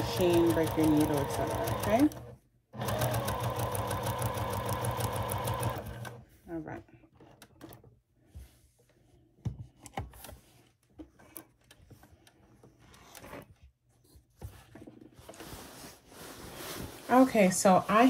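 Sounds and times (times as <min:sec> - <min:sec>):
cloth rustling: 0:13.0 - 0:18.0.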